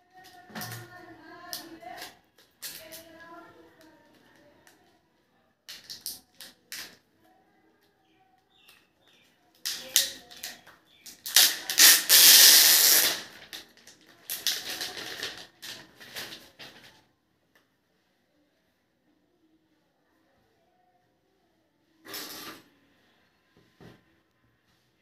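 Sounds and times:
plastic film crinkling: 8.5 - 17.0.

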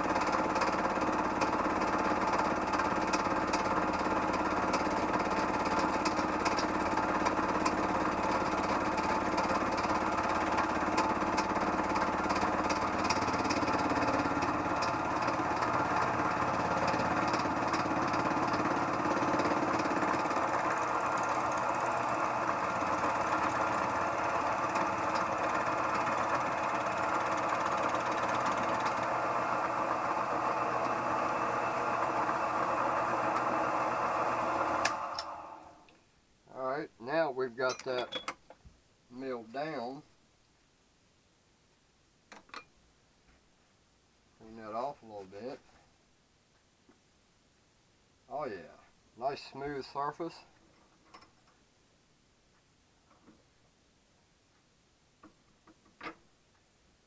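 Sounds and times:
rapid ticking of cutter: 0.1 - 33.8
machine motor humming: 1.2 - 35.8.

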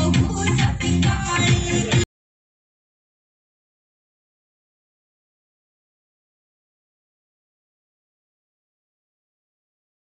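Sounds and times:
electronic dance track: 0.0 - 2.1.

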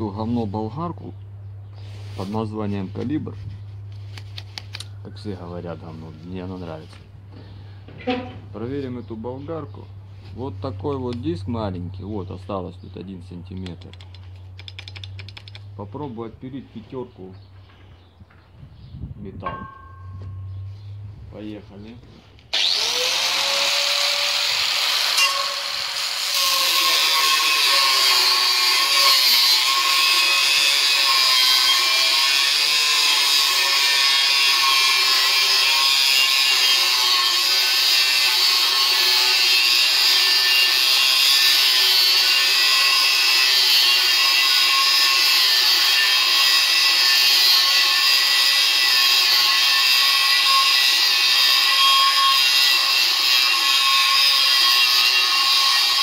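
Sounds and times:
angle grinder cutting steel: 22.5 - 56.0.

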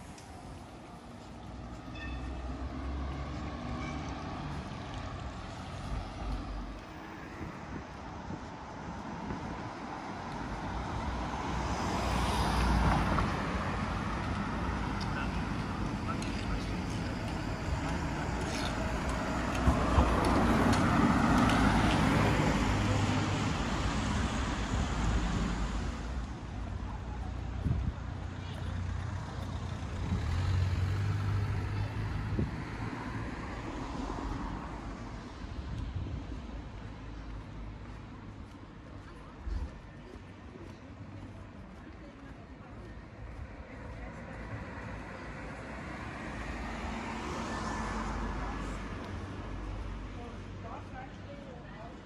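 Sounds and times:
street ambience: 0.0 - 52.0
vehicle engine rumbling: 13.0 - 33.0
car driving past: 28.8 - 35.0.

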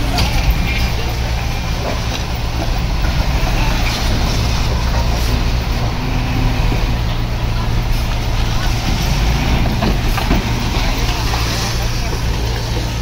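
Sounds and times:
heavy machinery diesel engine droning: 0.0 - 13.0.

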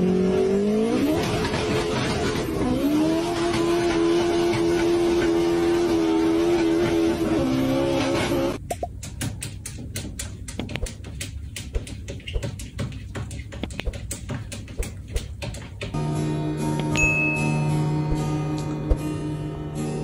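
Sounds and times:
car engine droning: 0.0 - 8.6.

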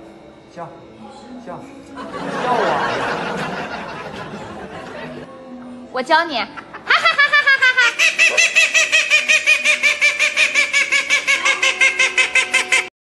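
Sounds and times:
duck quacking rapidly: 7.8 - 12.9.

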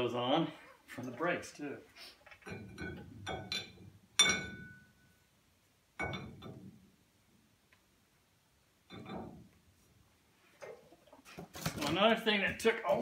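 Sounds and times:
ringing metal clank: 2.5 - 5.2, 6.0 - 6.7.

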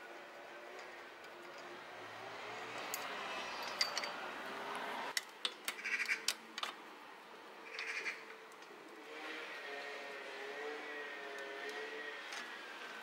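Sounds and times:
small metal clicks and clinks: 2.8 - 4.2.

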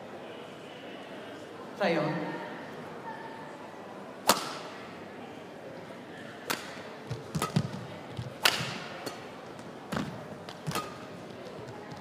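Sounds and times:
racket hitting shuttlecock: 4.2 - 4.8, 6.4 - 11.3.

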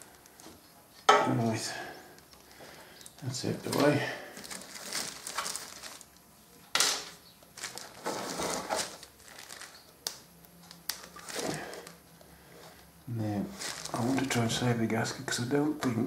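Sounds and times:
scraping: 7.6 - 9.8.

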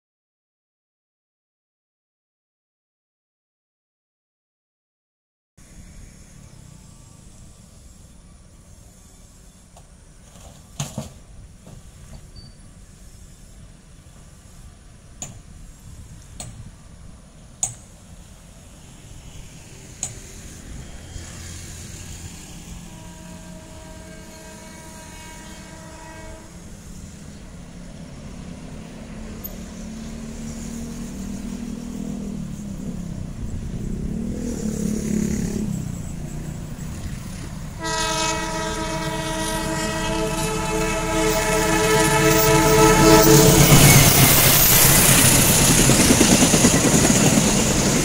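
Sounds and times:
locomotive engine rumble: 5.6 - 48.0
locomotive horn blasts: 22.3 - 27.2, 37.8 - 44.5.

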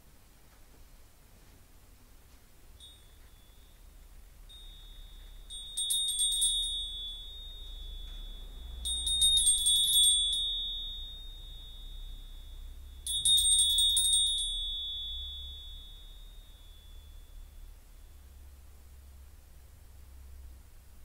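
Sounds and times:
small hand bell ringing: 2.8 - 18.6.

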